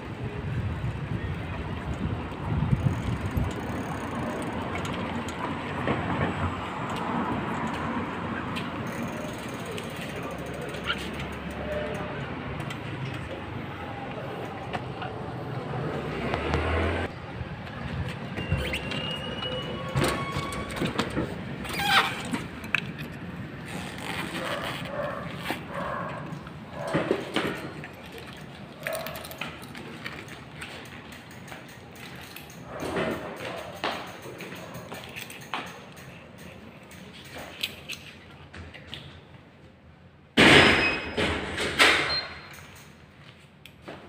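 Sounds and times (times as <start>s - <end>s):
wind buffeting microphone: 0.0s - 3.8s
scooter motor and road noise: 0.0s - 38.0s.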